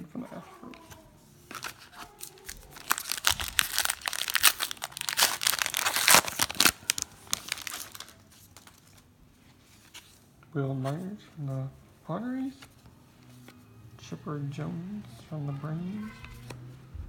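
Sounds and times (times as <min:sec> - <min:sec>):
foil wrapper crinkling and tearing: 0:01.5 - 0:09.0.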